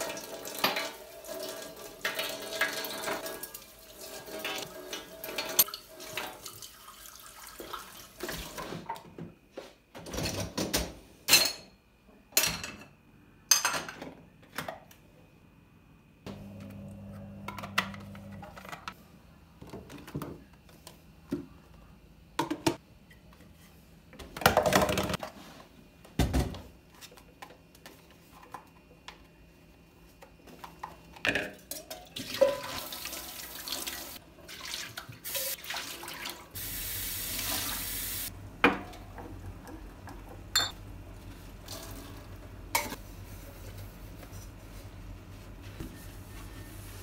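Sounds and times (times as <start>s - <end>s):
dishes and utensils clinking: 4.2s - 6.4s, 40.5s - 40.8s.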